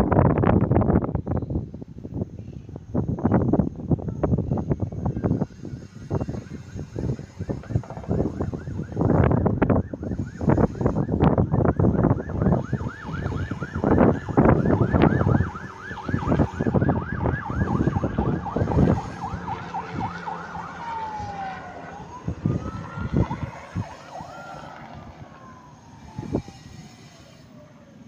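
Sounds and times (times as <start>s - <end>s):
emergency siren: 3.2s - 28.0s
pulsing low rumble: 6.9s - 12.6s, 13.5s - 26.5s.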